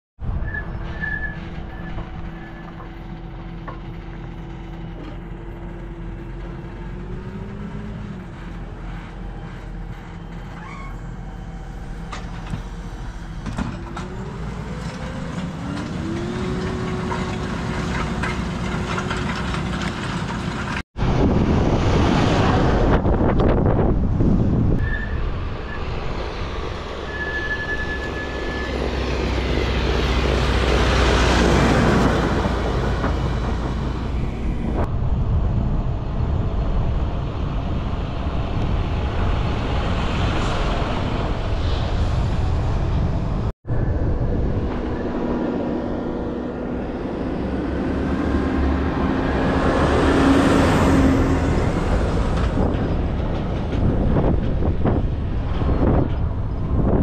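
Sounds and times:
tractor diesel engines passing: 0.2 - 57.0
wind noise on microphone: 21.0 - 57.0.

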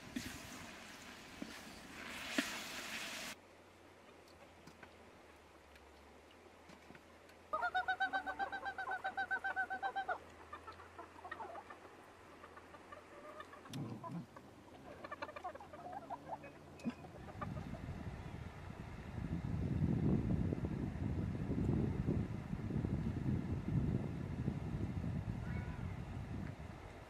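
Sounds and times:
hen clucking: 7.5 - 18.0.

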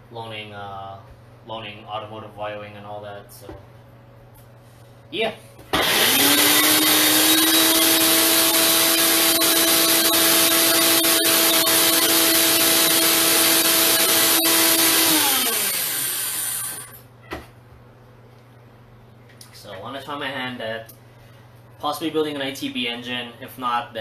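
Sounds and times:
blender motor whirring: 5.8 - 17.0.

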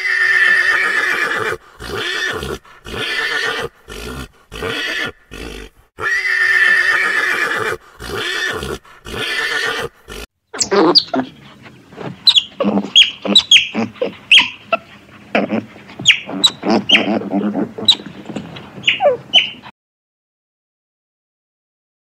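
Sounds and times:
pony whinnying: 0.0 - 11.3, 12.3 - 18.2, 18.8 - 19.7
high-pitched otter chirps: 12.2 - 14.6, 16.0 - 17.1, 18.8 - 19.6.

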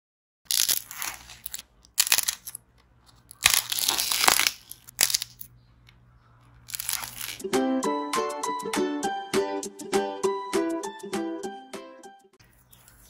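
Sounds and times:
dried clay cracking and crumbling: 0.5 - 7.4.

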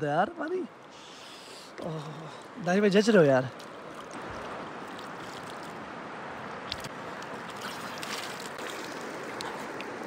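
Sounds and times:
river rushing over stones: 2.1 - 10.0.

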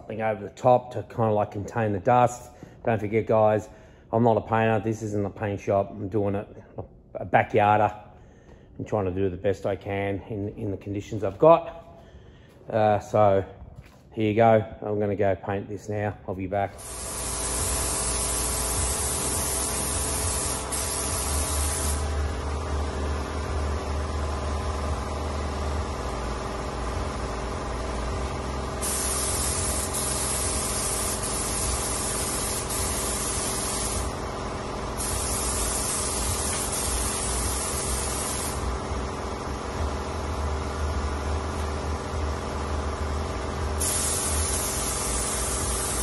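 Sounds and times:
steady machine hum: 16.4 - 46.0
spray gun hissing: 16.7 - 22.3, 28.7 - 34.3, 34.9 - 38.7, 43.8 - 46.0.

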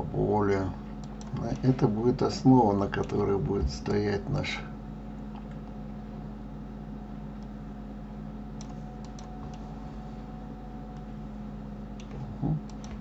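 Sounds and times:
low electrical hum: 0.0 - 13.0
computer key clicks: 8.6 - 9.6.

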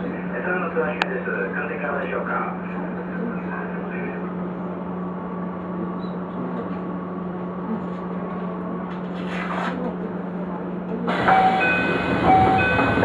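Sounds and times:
electric train hum: 0.0 - 13.0.

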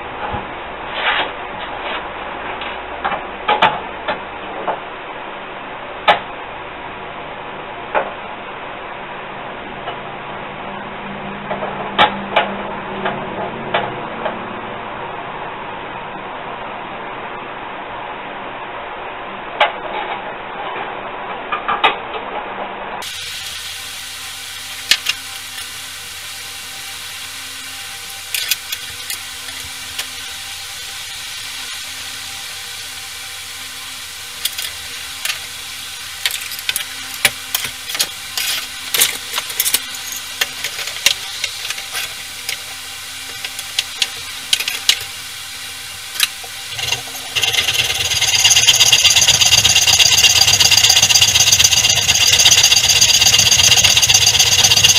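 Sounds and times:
electric power tool running: 23.0 - 54.9.

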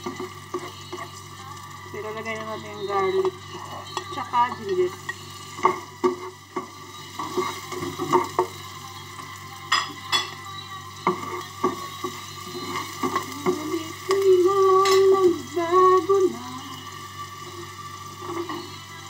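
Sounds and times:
food sizzling in a wok: 0.0 - 19.0
spatula scraping and knocking pan: 3.2 - 8.6.

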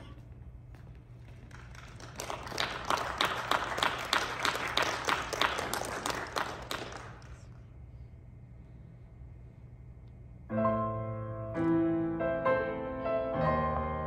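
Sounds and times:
faint low hum: 0.0 - 14.0
audience applauding: 1.2 - 7.6.

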